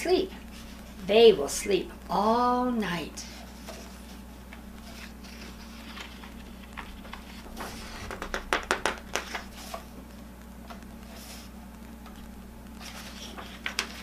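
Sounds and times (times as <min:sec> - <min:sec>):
book pages turning: 0:03.3 - 0:10.0, 0:12.8 - 0:14.0
low hum: 0:04.3 - 0:13.4.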